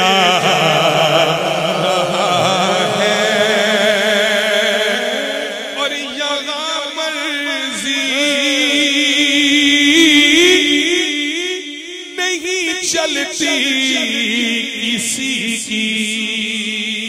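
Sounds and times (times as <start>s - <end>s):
man singing melisma: 0.0s - 17.0s.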